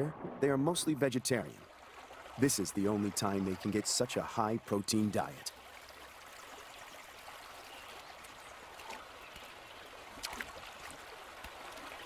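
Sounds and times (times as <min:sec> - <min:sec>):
water splash: 0:10.1 - 0:12.0.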